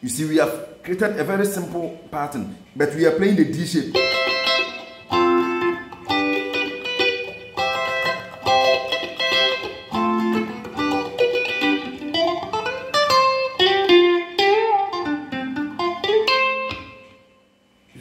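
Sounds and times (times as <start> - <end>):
guitar single-note solo: 3.9 - 17.4.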